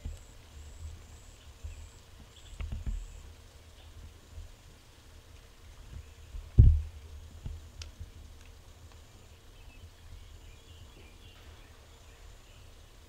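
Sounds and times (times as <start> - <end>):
faint outdoor background noise: 0.0 - 13.0
low dull thump: 6.5 - 6.9.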